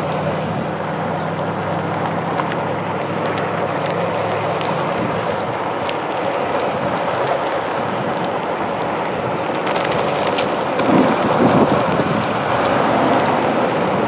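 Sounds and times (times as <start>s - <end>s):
heavier rumble: 0.0s - 14.0s
tyre rolling noise: 0.0s - 14.0s
wind over microphone: 0.0s - 14.0s.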